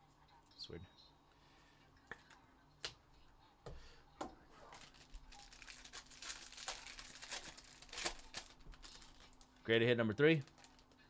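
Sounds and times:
foil pouch crinkling: 4.7 - 11.0.

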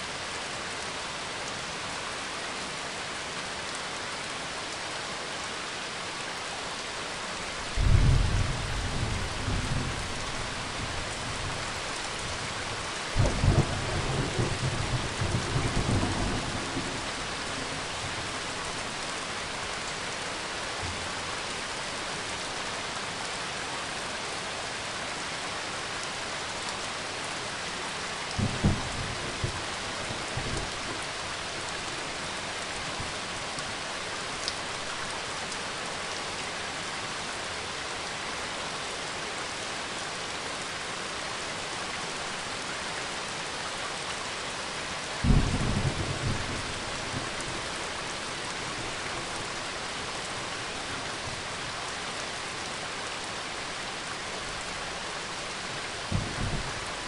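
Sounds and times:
rain hissing: 6.2 - 23.9, 25.5 - 36.3, 43.4 - 57.0.

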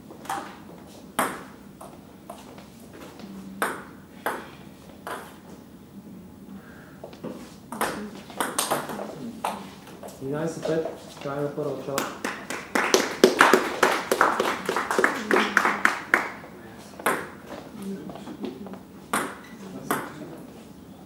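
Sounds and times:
table tennis ball hits: 1.2 - 1.5, 3.6 - 5.4, 7.7 - 9.6, 17.0 - 17.4, 19.1 - 20.2.

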